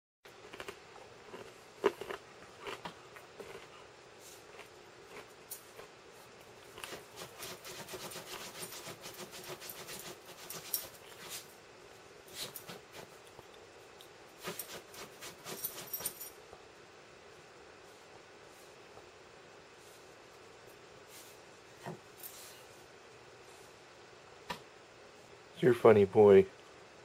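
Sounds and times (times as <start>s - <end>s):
dog scratching at blanket: 6.8s - 11.5s, 12.3s - 13.2s, 14.4s - 16.2s.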